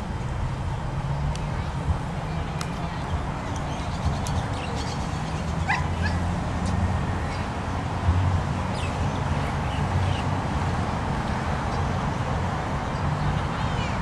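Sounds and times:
dog whining and yipping: 5.7s - 6.2s.

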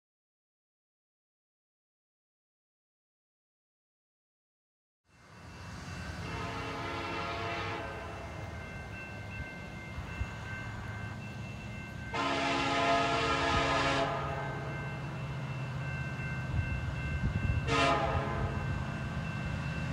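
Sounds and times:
train air horn blasts: 6.2s - 8.3s, 12.1s - 14.8s, 17.6s - 18.6s.

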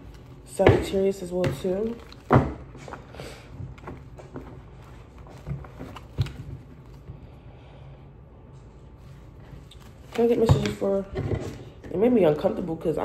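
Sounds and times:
cards being shuffled: 1.5s - 2.3s, 3.8s - 7.1s, 9.4s - 10.8s.

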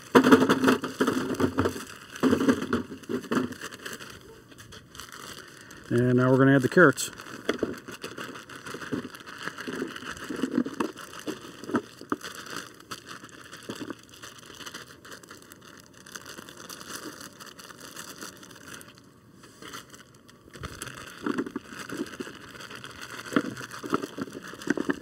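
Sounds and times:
carrots tumbling into foil pan: 0.0s - 4.0s, 20.6s - 25.0s
plastic bag crinkling: 0.0s - 25.0s.

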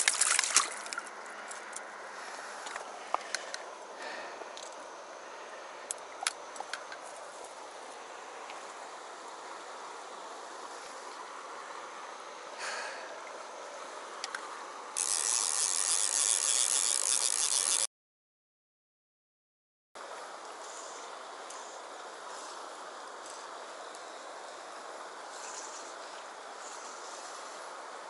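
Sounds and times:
stream water rushing: 0.0s - 1.3s.

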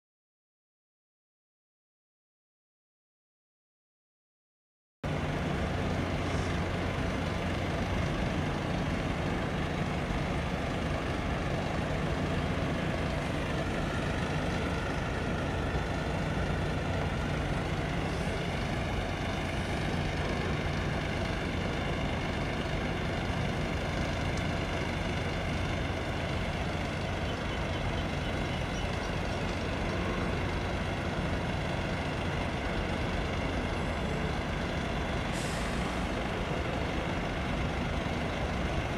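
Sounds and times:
diesel engines humming: 5.1s - 38.9s.

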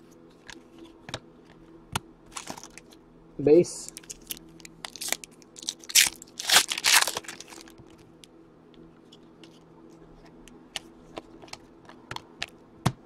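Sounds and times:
wrapper crinkling and tearing: 2.3s - 3.0s, 3.8s - 8.0s.

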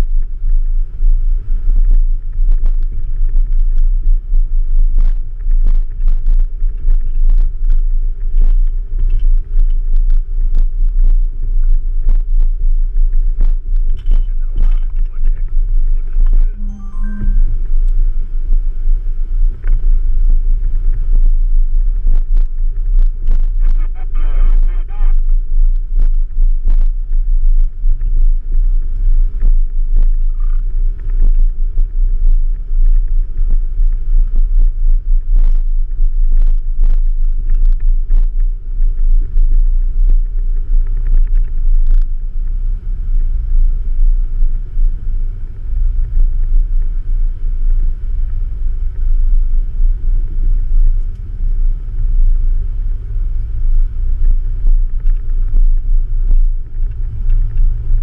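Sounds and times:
off-road vehicle engine rumbling: 0.0s - 58.0s.

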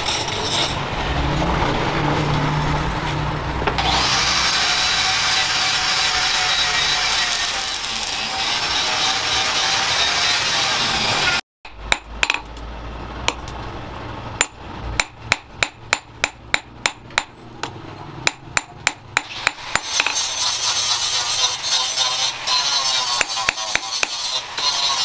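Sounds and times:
hammer striking hot metal: 14.4s - 20.3s, 23.1s - 24.4s.

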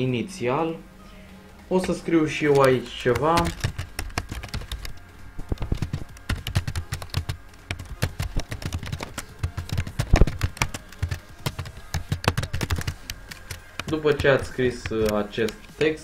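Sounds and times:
typing on computer keyboard: 1.8s - 16.0s.

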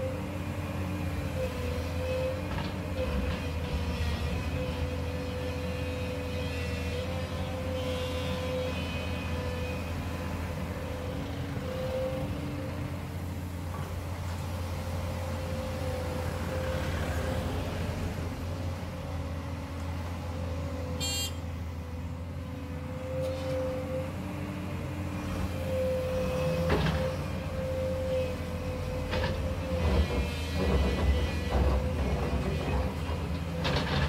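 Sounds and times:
excavator diesel engine running: 0.0s - 34.0s
hydraulic whine: 21.0s - 21.5s.

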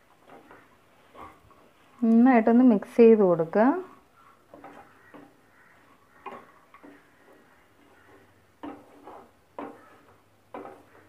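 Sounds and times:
wooden spatula knocking metal pan: 4.4s - 11.0s.

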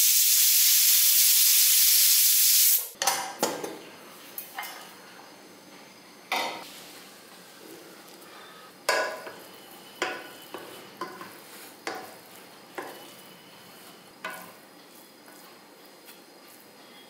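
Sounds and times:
spatula knocking metal pot: 8.9s - 9.4s
rice rustling and scraping: 9.2s - 17.0s.

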